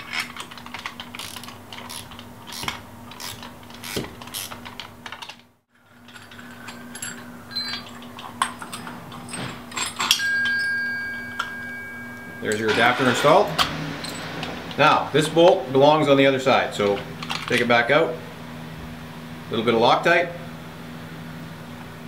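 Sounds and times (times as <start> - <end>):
wrenches clinking on a bolt: 0.0 - 14.8
metallic ring: 6.0 - 15.2.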